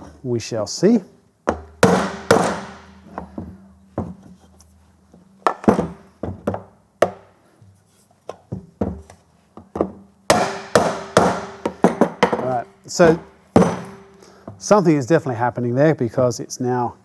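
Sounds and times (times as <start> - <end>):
hammer knocking on metal: 9.8 - 14.0.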